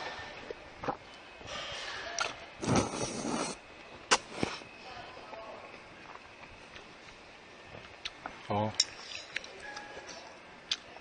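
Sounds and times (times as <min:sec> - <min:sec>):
sucking and chewing: 0:00.0 - 0:04.8, 0:07.8 - 0:08.3, 0:10.6 - 0:11.0
person slurping noodles: 0:02.6 - 0:04.7.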